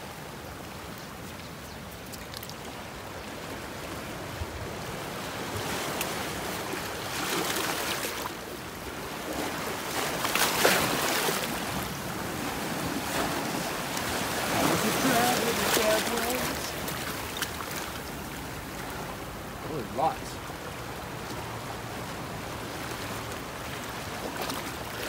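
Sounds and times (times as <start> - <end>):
ocean surf washing onto beach: 2.8 - 25.0.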